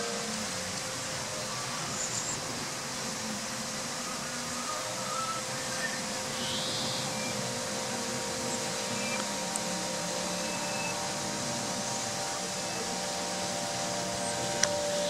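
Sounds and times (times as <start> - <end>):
steady rushing noise: 0.0 - 15.0
faint ringing tones: 3.1 - 15.0.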